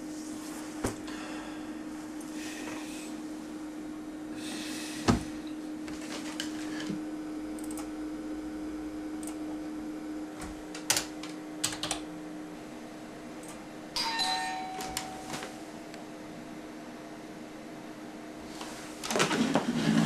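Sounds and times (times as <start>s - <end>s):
steady low hum: 0.0s - 20.0s
computer keystrokes: 7.6s - 7.9s, 10.8s - 12.0s.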